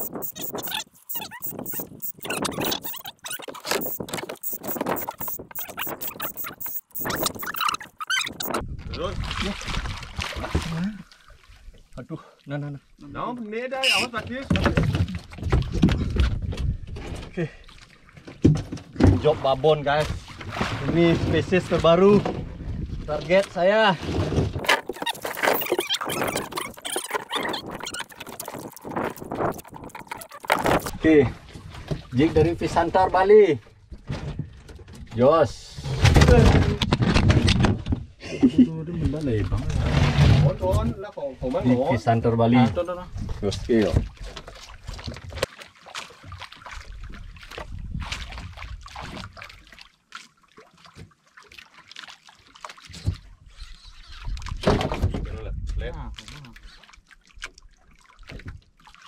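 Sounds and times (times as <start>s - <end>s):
water lapping against boat hull: 0.0s - 32.9s, 39.0s - 59.0s
wind rumbling on microphone: 8.2s - 10.2s, 22.2s - 23.2s, 26.0s - 31.0s
knocks and scrapes on boat deck: 14.0s - 17.4s, 18.2s - 28.1s, 33.8s - 38.1s, 39.6s - 41.0s, 52.9s - 55.8s.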